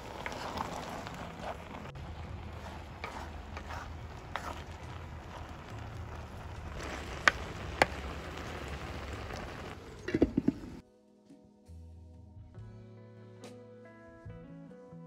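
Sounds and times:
ladle scraping clay pot: 0:00.0 - 0:08.4, 0:09.8 - 0:10.8.

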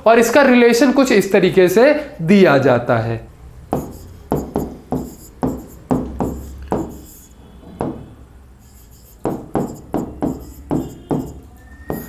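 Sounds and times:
stylus tapping on glass: 0:03.7 - 0:07.1, 0:07.8 - 0:08.0, 0:09.2 - 0:12.0.

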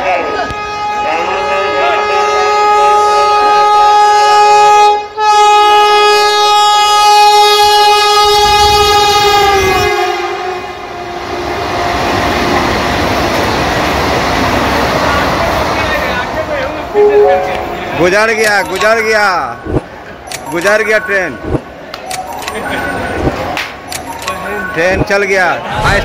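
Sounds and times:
train horn blast: 0:00.2 - 0:11.4
train rushing and wheel noise: 0:08.2 - 0:16.9, 0:25.6 - 0:26.0.

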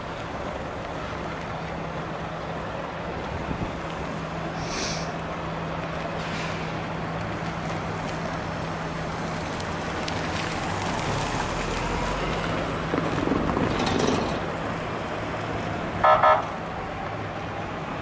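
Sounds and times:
road traffic noise: 0:00.0 - 0:18.0
vehicle horn toots: 0:16.0 - 0:16.5.

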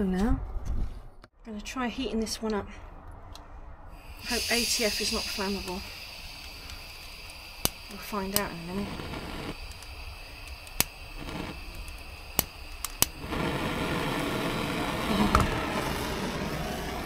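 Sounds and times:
blowtorch flame hissing: 0:04.0 - 0:17.0
igniter clicks: 0:04.3 - 0:15.6.

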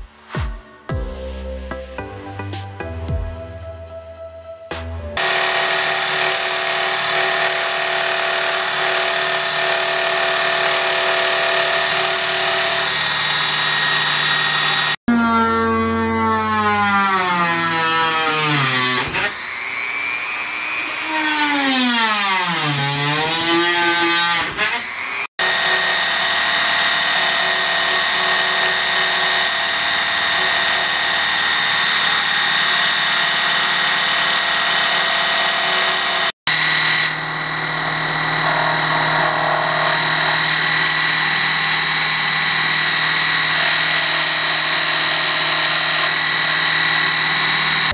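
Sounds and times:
rotary tool drilling: 0:05.2 - 0:47.9
scroll saw cutting fibreboard: 0:05.2 - 0:47.9.

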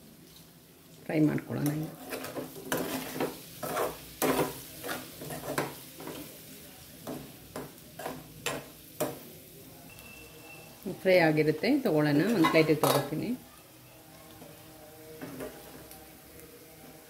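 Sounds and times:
oil sizzling: 0:00.0 - 0:17.0
spoon scraping metal pan: 0:01.8 - 0:06.3, 0:12.1 - 0:13.2.

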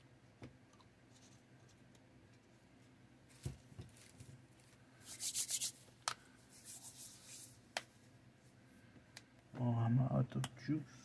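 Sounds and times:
hands rubbing paper: 0:04.0 - 0:05.9, 0:06.5 - 0:07.6.

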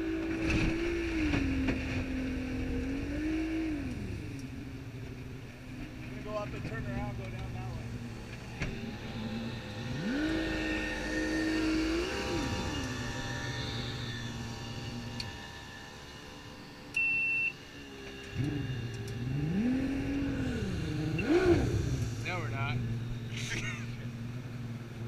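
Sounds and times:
water rushing along hull: 0:00.0 - 0:16.8
boat engine revving: 0:00.0 - 0:25.0
short high beep: 0:17.0 - 0:17.6.

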